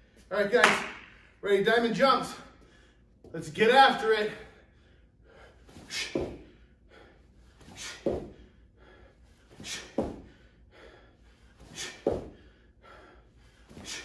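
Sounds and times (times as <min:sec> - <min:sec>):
sharp breaths: 0:04.4 - 0:14.0
feet thudding on rubber floor: 0:05.9 - 0:06.5, 0:07.7 - 0:08.4, 0:09.6 - 0:10.4, 0:11.7 - 0:12.4.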